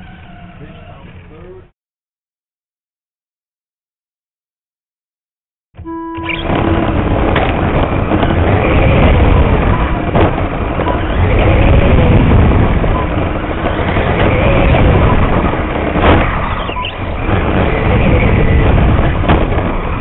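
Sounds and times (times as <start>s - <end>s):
wind and track noise rumble: 5.8s - 20.0s.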